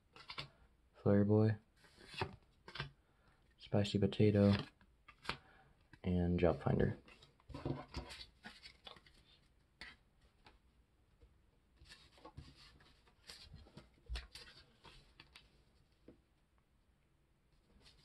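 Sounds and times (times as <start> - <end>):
trading cards rustling and tapping: 2.0 - 3.0, 4.4 - 6.0.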